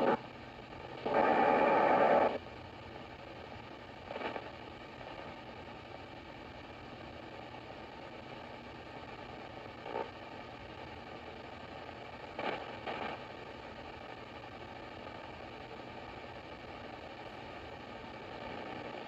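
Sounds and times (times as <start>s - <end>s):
radio static hiss: 0.0s - 19.0s
bursts of noisy radio reception: 1.0s - 2.4s.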